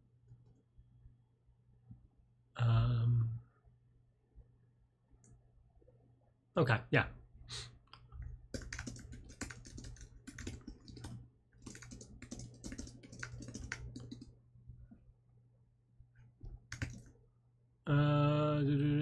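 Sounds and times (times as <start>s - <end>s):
faint low hum: 0.0s - 19.0s
typing on computer keyboard: 8.5s - 14.3s, 16.7s - 17.1s.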